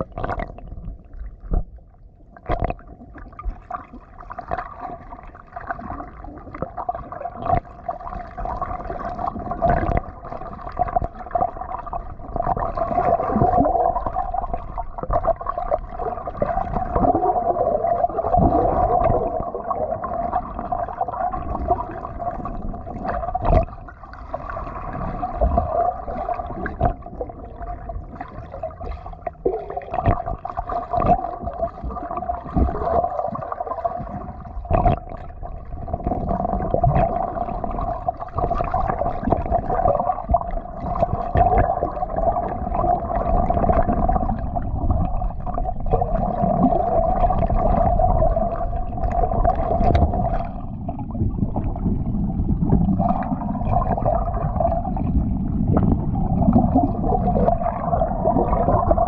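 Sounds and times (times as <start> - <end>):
muffled underwater gurgling and splashing: 0.0 - 59.0.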